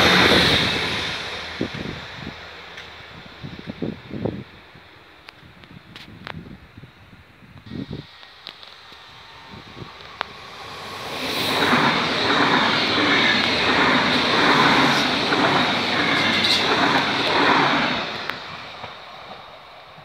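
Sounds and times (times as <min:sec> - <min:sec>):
train wheels clattering on rails: 0:09.8 - 0:20.0.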